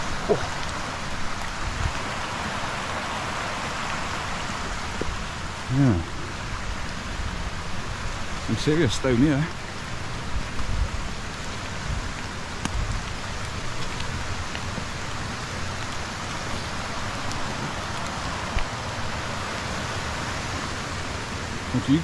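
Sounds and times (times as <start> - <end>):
rain: 0.0 - 22.0
stream flowing: 0.0 - 22.0.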